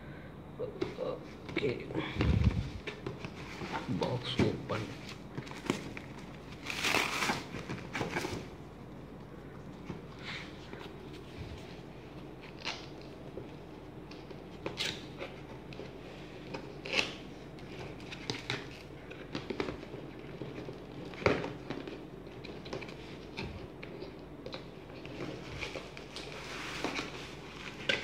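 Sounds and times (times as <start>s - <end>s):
cardboard packaging rustling: 2.2s - 8.6s, 14.2s - 28.0s.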